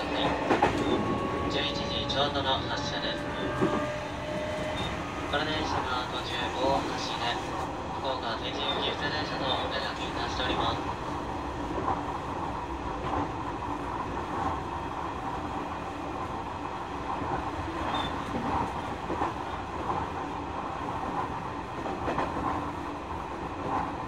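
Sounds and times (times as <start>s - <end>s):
clacks over rail joints: 0.0s - 1.5s, 17.0s - 24.0s
train wheels rumbling on rail: 0.0s - 24.0s.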